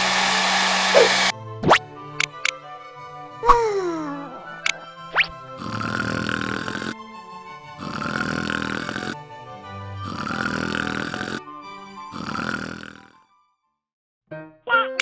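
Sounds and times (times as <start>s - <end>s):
cartoon rasping snores: 0.9s - 1.3s, 5.6s - 7.0s, 7.7s - 9.2s, 10.0s - 11.4s, 12.0s - 13.2s
background music: 1.3s - 13.6s, 14.3s - 15.0s.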